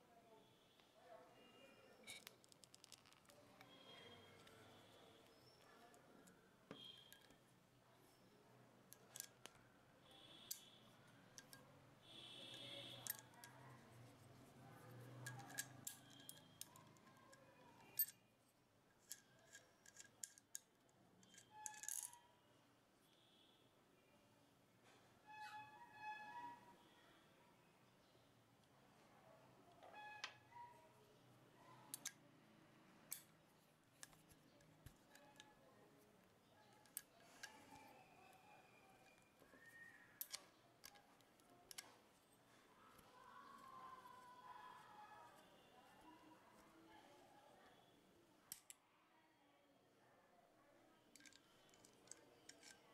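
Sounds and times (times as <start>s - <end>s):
metallic clicks and taps: 12.5s - 13.6s, 15.2s - 18.2s, 31.9s - 32.2s, 40.2s - 42.0s, 48.5s - 48.8s, 51.2s - 52.8s
metallic clicks of hand tools: 19.0s - 22.1s, 40.2s - 41.9s, 51.2s - 52.8s.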